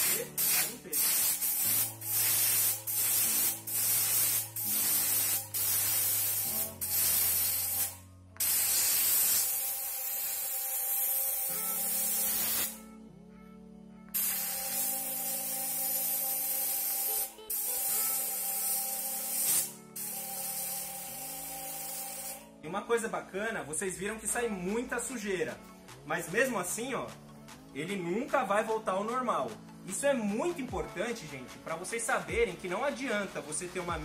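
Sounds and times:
compressed air hissing from blow gun: 0.0s - 12.8s, 14.1s - 22.4s
faint background music: 0.0s - 34.0s.

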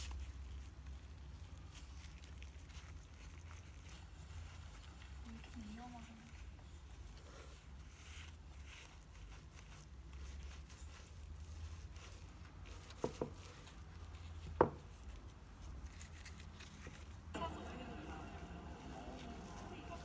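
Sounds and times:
seaweed rubbing on wood: 0.0s - 20.0s
low steady hum: 13.8s - 20.0s.

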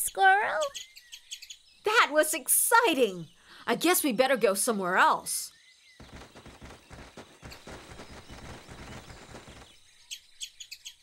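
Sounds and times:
squirrels chittering: 0.0s - 11.0s
quick running footsteps: 6.0s - 9.7s.

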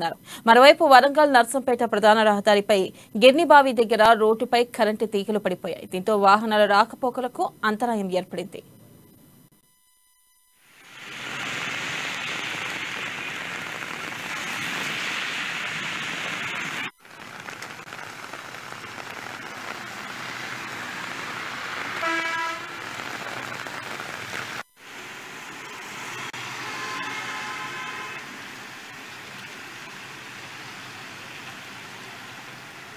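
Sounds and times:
rain hissing: 10.6s - 32.9s
traffic on wet road: 11.0s - 32.9s
vehicle horn: 22.0s - 22.9s, 25.6s - 28.4s.

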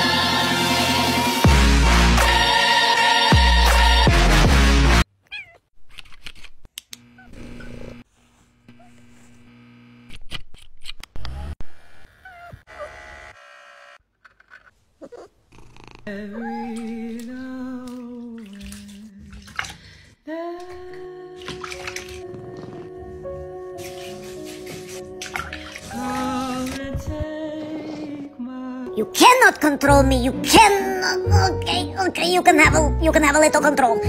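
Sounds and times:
cats meowing: 5.2s - 5.7s
electric grooming brush running: 7.0s - 10.1s, 11.6s - 14.0s.

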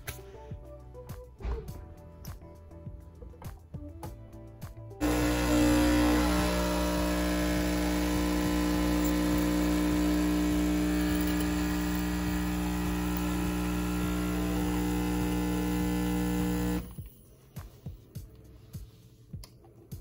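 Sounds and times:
espresso machine pump humming: 5.0s - 17.0s.

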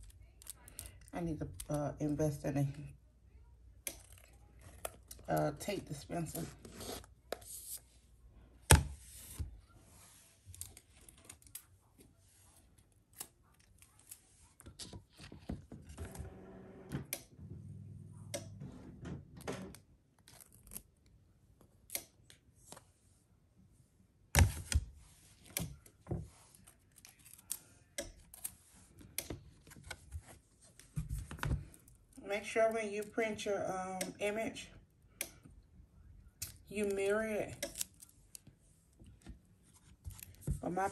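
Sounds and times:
tape pulled and torn: 20.2s - 21.0s.

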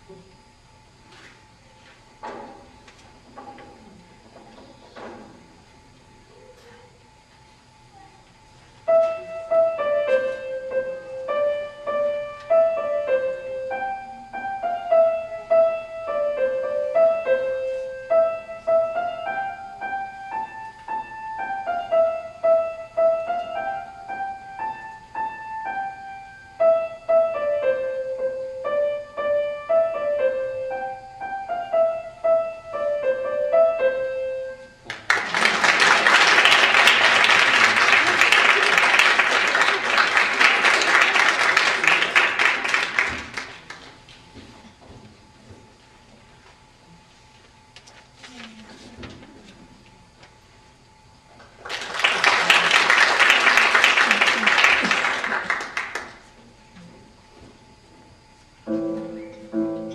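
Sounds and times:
grand piano melody: 8.8s - 34.9s, 58.6s - 59.9s
audience applause: 34.9s - 44.0s, 51.6s - 56.3s.

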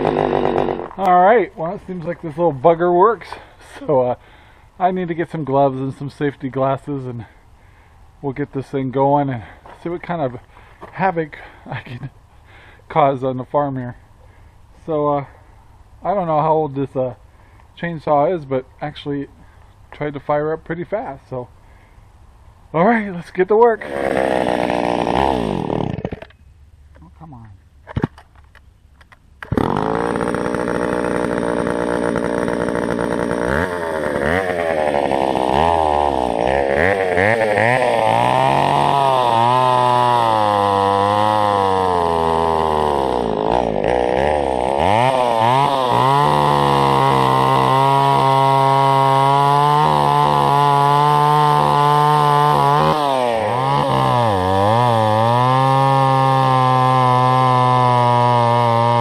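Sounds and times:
chainsaw revving and cutting wood: 0.0s - 6.0s, 9.4s - 12.8s, 23.6s - 26.4s, 29.4s - 59.0s.

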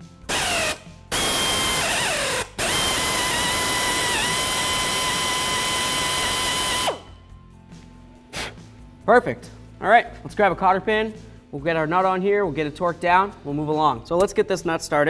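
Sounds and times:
power drill drilling into steel: 0.3s - 7.1s.

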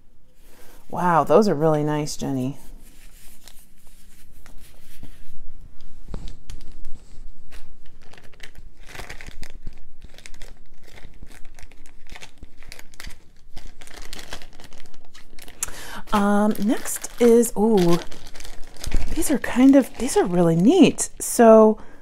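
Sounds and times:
packaging crinkling: 6.2s - 21.4s.

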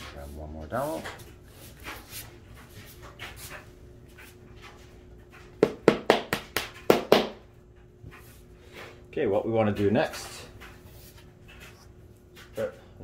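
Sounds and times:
hammer tapping wooden dowel: 5.6s - 7.4s.

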